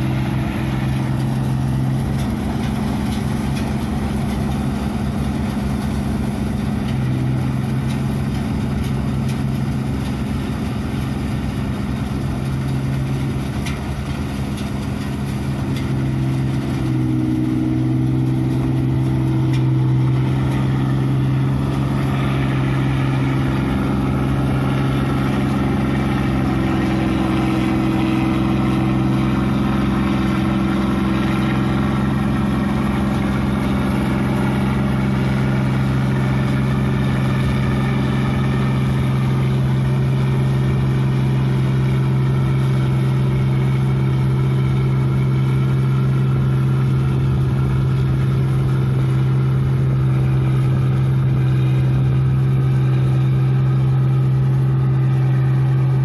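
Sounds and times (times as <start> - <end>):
combine harvester engine running: 0.0 - 56.0.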